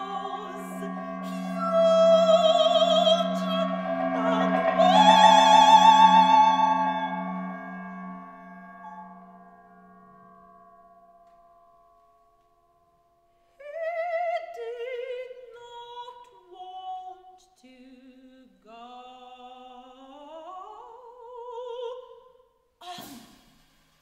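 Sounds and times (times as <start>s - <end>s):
soprano singing operatic line: 0.0s - 9.3s, 13.6s - 23.2s
cymbal struck: 0.0s - 11.5s
metallic ringing tones: 0.0s - 15.4s.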